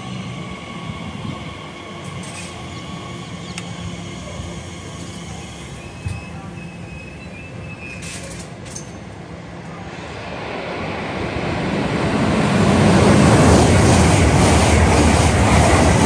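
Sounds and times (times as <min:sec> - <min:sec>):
train approaching rumble: 0:00.0 - 0:16.0.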